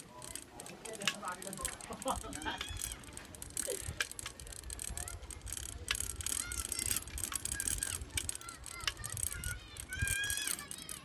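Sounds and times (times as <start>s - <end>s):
bicycle rattling clicks: 0.0s - 11.0s.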